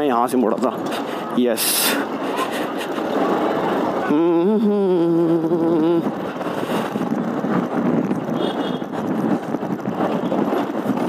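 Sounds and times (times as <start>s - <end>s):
wind buffeting microphone: 0.0s - 11.0s
motorcycle running: 1.7s - 11.0s.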